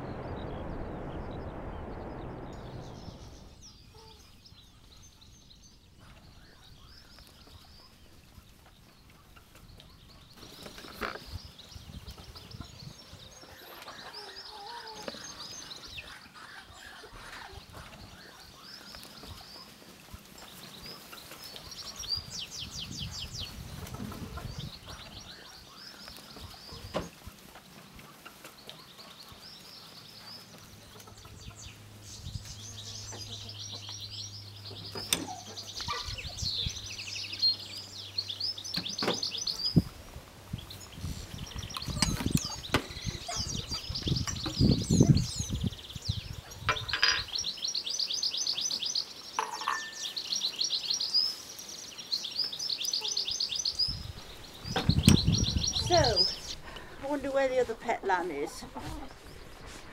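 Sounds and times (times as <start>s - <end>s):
faint low hum: 0.0s - 4.3s
songbirds trilling and chirping: 0.0s - 59.9s.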